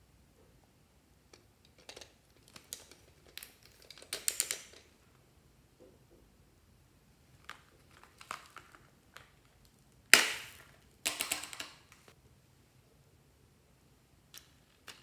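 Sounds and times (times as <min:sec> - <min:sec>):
plastic toy clicks: 0:01.8 - 0:04.9, 0:11.1 - 0:12.0.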